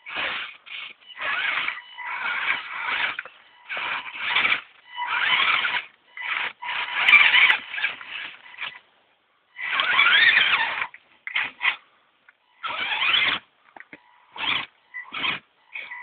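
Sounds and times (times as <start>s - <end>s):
steady high tone: 0.0s - 6.6s
electric motor whining in bursts: 0.0s - 8.8s, 9.6s - 11.8s, 12.5s - 13.5s, 14.2s - 16.0s.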